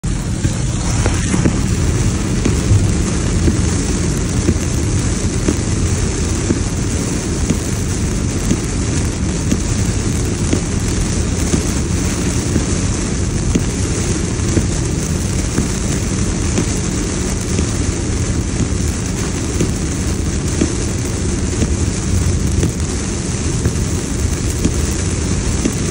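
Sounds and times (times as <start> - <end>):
car tyres rumbling on wet road: 0.0 - 25.9
heavy rain on car roof: 0.0 - 25.9.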